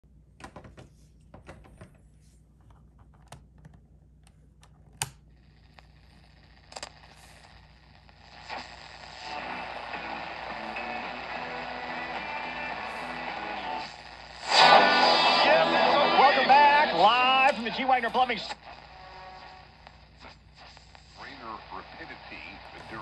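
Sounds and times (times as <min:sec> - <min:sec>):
radio static hiss: 0:05.3 - 0:23.0
radio station audio: 0:05.7 - 0:23.0.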